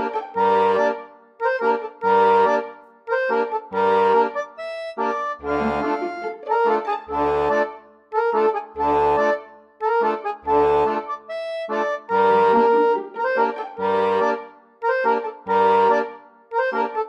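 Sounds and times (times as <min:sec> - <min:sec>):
accordion music: 0:00.0 - 0:17.0.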